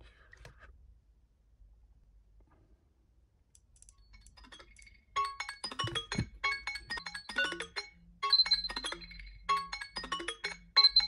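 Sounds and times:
phone alarm chime tones: 0:04.4 - 0:11.0.

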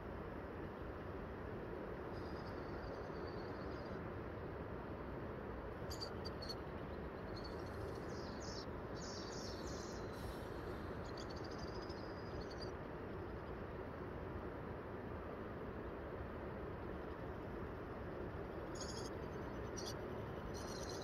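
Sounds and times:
steady background noise: 0:00.0 - 0:21.0
small bird chirping: 0:02.2 - 0:04.0, 0:07.2 - 0:12.7, 0:18.7 - 0:21.0.

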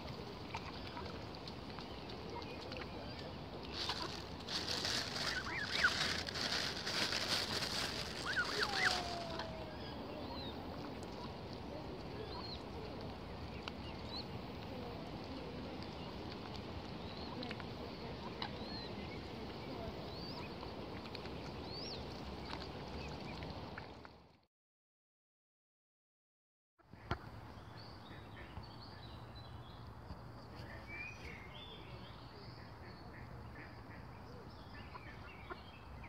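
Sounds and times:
rustling hiss: 0:03.7 - 0:10.3.

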